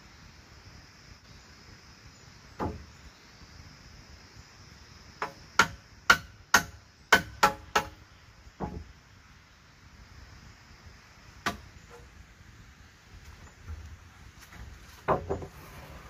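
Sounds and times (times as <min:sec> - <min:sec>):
hammer striking nail into wood: 0:05.2 - 0:08.0.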